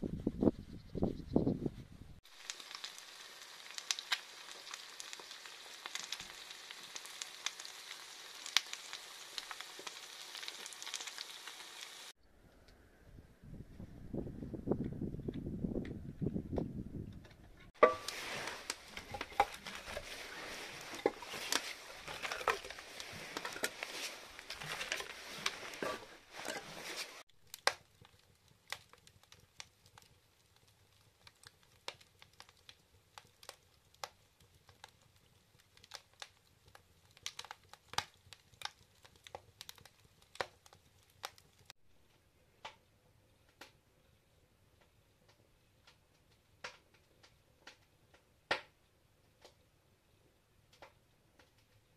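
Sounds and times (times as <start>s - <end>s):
logs crackling in a stove: 2.2s - 12.2s, 17.2s - 51.9s.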